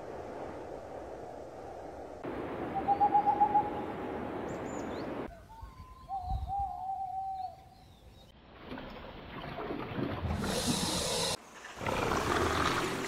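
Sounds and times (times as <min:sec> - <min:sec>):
owl hooting: 0:02.8 - 0:03.8.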